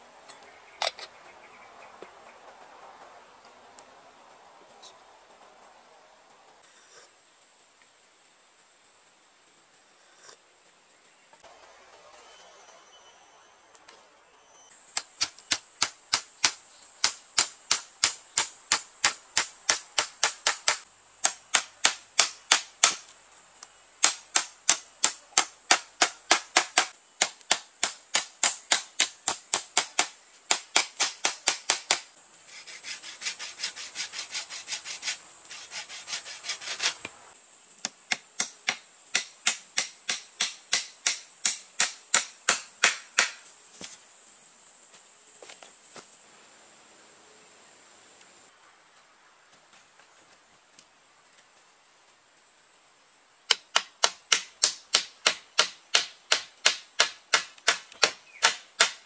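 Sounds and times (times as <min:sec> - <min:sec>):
hammer driving nails: 0:24.0 - 0:32.1, 0:53.5 - 0:59.0.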